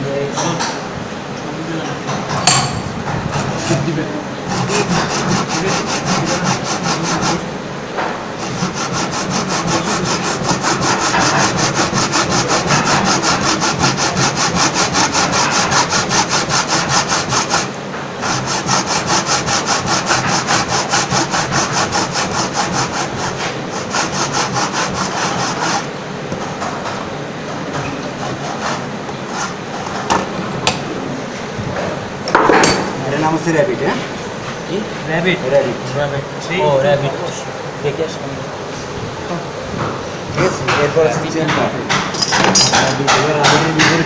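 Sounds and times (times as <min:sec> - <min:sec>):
hand saw cutting wood: 0:04.5 - 0:07.5, 0:08.4 - 0:26.7, 0:28.0 - 0:30.0.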